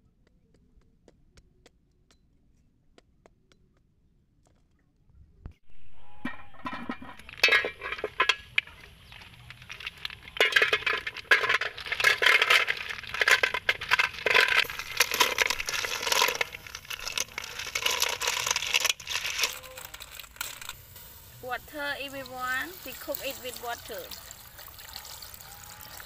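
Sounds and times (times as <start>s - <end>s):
snail shells clattering into metal pot: 6.1s - 26.0s.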